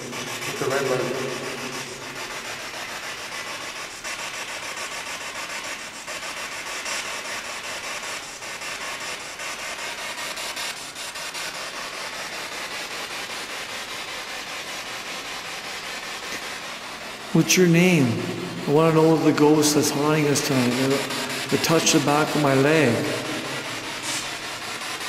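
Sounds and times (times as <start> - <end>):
pulsing radio static: 0.0 - 2.6, 17.2 - 24.8.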